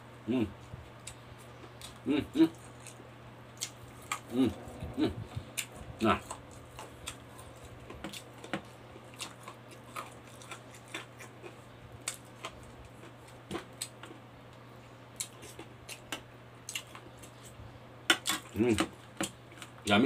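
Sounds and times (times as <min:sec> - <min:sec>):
faint steady hum: 0:00.0 - 0:20.0
person chewing with lip smacks: 0:03.6 - 0:14.0.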